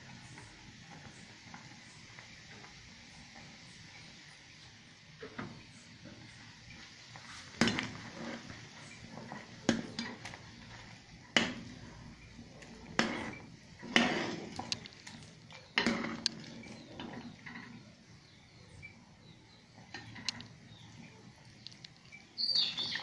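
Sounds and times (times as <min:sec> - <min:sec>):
utensil scraping pot: 0:07.1 - 0:18.6.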